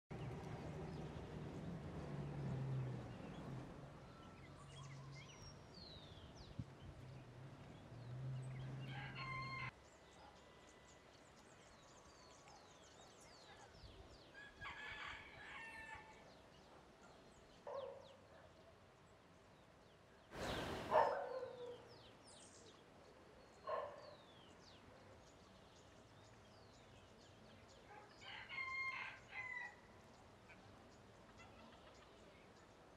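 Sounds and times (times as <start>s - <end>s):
small birds chirping: 0.1s - 9.2s, 16.5s - 28.1s
faint rooster crowing: 8.7s - 9.8s, 14.3s - 16.4s, 28.1s - 30.0s.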